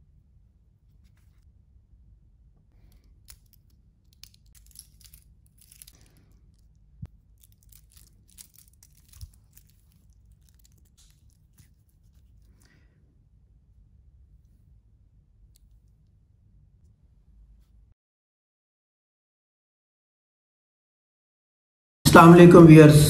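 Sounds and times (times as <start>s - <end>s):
metal watch bracelet clinking: 3.2s - 6.7s, 7.3s - 11.7s.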